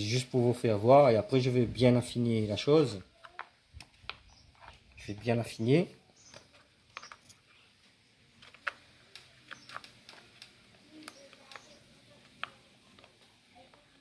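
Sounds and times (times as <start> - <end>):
hard plastic clicks and taps: 3.2 - 4.8, 8.4 - 13.8.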